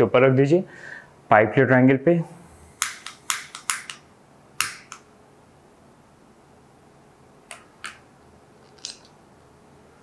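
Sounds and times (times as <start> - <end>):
spark lighter clicking: 2.8 - 4.0.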